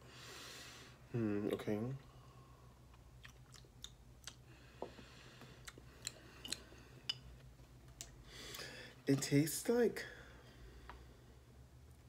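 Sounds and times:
person sipping a drink: 3.2s - 7.2s.

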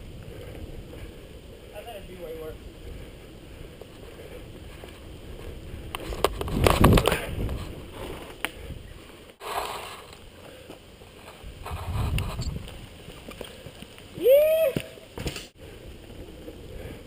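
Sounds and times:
bike tyres on dirt trail: 0.0s - 17.0s
jolt of rumble and clatter: 5.3s - 8.3s.

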